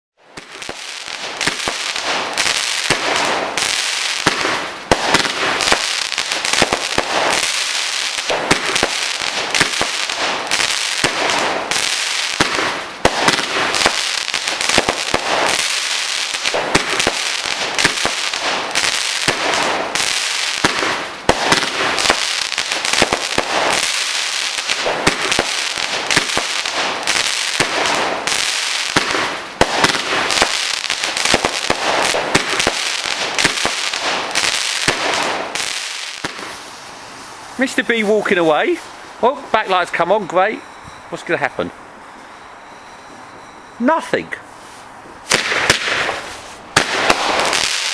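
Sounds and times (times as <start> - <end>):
fireworks crackling and popping: 0.2 - 41.5, 44.6 - 47.9
steady hiss: 31.9 - 42.6.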